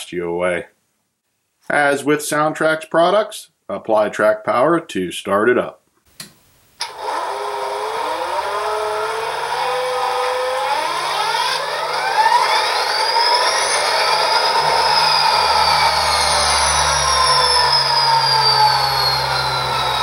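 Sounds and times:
turbocharger whine: 0:06.8 - 0:20.0
low diesel engine rumble: 0:11.8 - 0:20.0.

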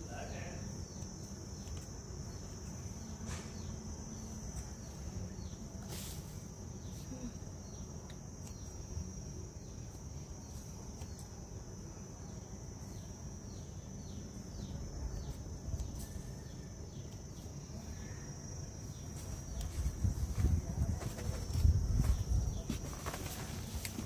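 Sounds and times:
rustling and bumps of plants: 0:18.8 - 0:24.0.

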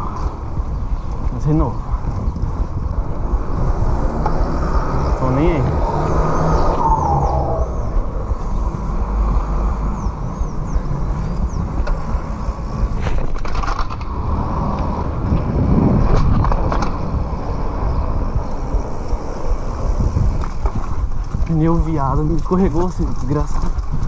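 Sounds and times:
bike tyres rumbling on paving: 0:00.0 - 0:24.0
wind on microphone: 0:00.0 - 0:24.0
bike knocking and rattling: 0:10.0 - 0:24.0.

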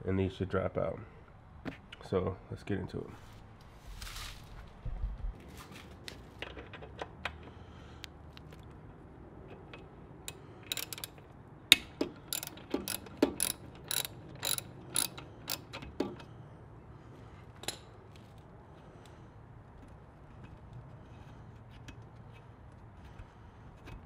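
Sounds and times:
hand ratchet clicking: 0:09.5 - 0:16.3.

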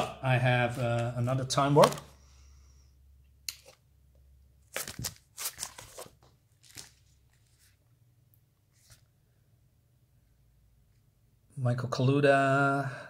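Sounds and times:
plastic sleeve crinkling: 0:00.6 - 0:02.1, 0:04.6 - 0:07.8.

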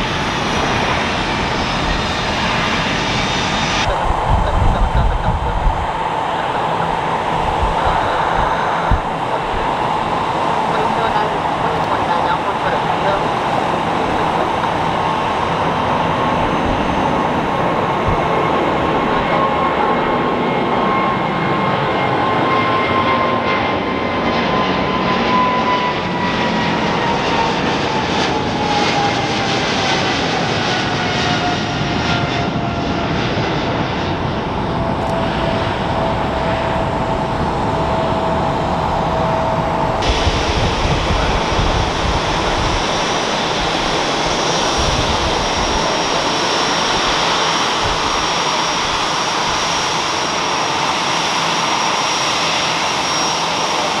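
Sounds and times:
jet engines at takeoff power: 0:00.0 - 0:54.0
jet engines idling with high whine: 0:00.0 - 0:54.0.

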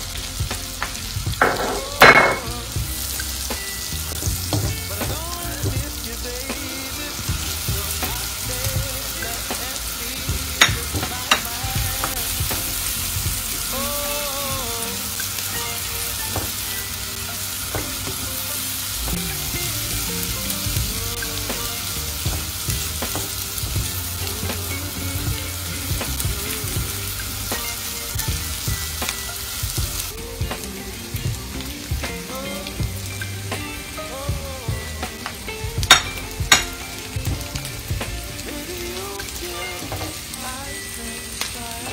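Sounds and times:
meat sizzling in a frying pan: 0:00.0 - 0:41.9.

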